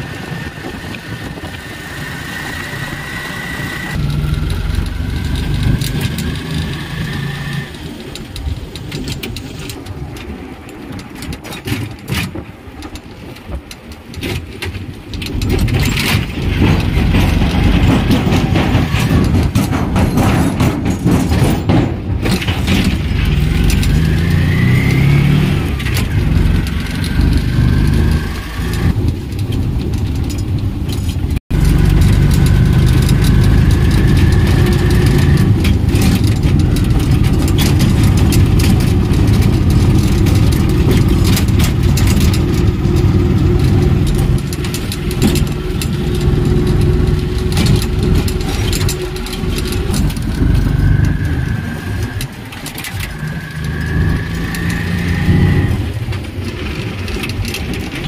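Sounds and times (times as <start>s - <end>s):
auto-rickshaw engine whine: 0.0s - 58.0s
vehicle body clattering: 7.9s - 24.5s.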